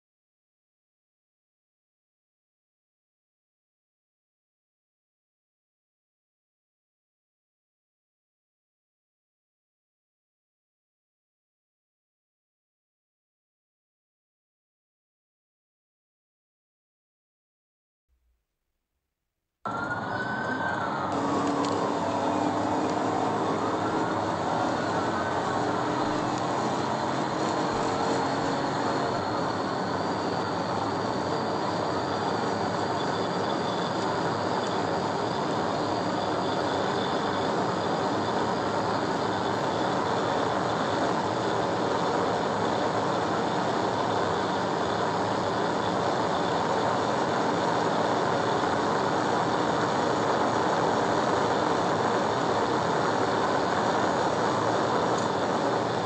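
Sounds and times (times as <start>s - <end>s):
faint siren wailing: 19.7s - 56.0s
wind and road noise inside car: 20.7s - 56.0s.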